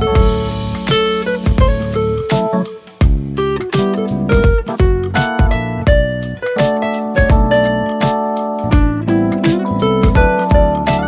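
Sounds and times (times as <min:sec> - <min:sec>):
plucked guitar: 0:00.0 - 0:11.0
steady drum beat: 0:00.0 - 0:11.0.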